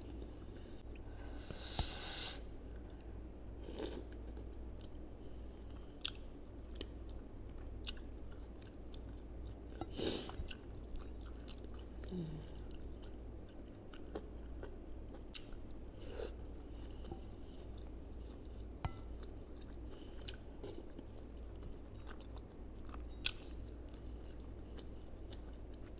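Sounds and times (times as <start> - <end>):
close chewing with crunches: 5.7 - 25.9.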